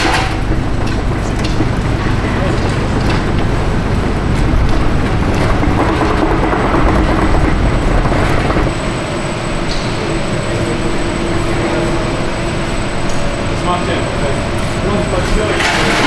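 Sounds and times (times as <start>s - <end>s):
pallet truck rattling over paving: 0.0s - 8.8s, 15.5s - 16.0s
steady hum: 0.0s - 16.0s.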